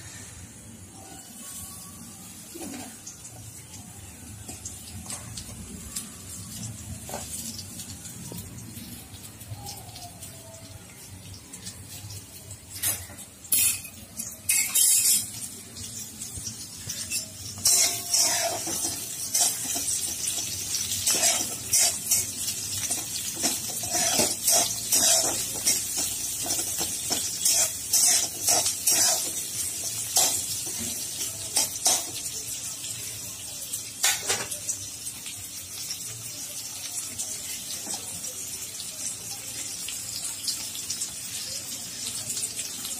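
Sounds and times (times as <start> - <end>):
oil sizzling: 0.0 - 42.9
metal spatula scraping a pan: 12.8 - 15.4, 16.8 - 31.0.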